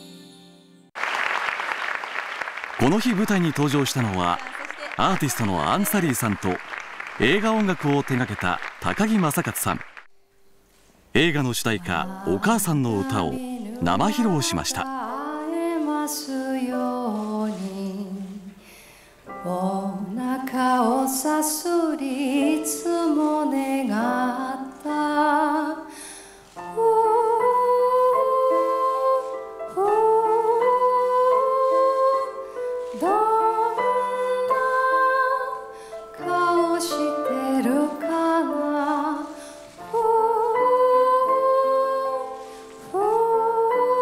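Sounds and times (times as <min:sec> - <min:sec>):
grand piano: 0:02.7 - 0:10.1, 0:11.2 - 0:44.0
woman singing: 0:11.8 - 0:18.6, 0:19.3 - 0:25.9, 0:26.6 - 0:44.0.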